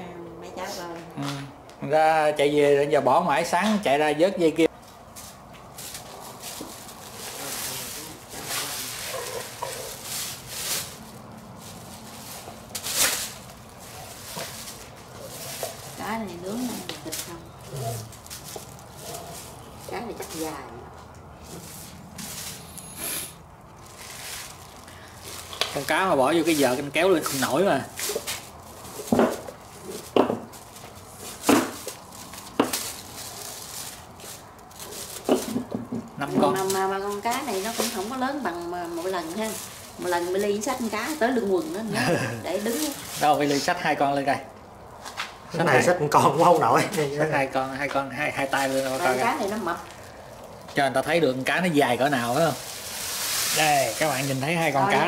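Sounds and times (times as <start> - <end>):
plastic sheeting crinkling: 4.6 - 22.8, 23.6 - 55.0
handling knocks and rustles: 4.8 - 22.7, 23.8 - 43.8.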